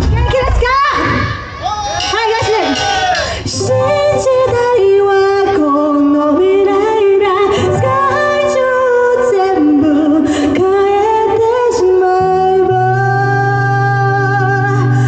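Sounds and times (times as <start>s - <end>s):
backing music: 0.0s - 10.0s
woman singing into microphone: 2.5s - 15.0s.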